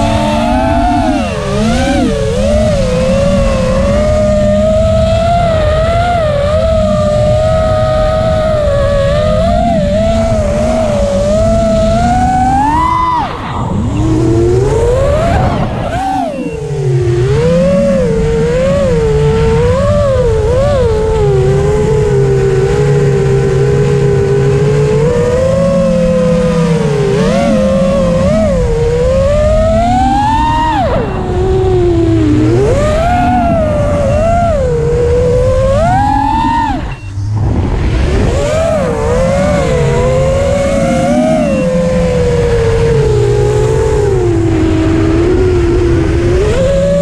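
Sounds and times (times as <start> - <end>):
drone motors whining: 0.0 - 47.0
wind rushing: 10.5 - 18.6, 31.0 - 42.6.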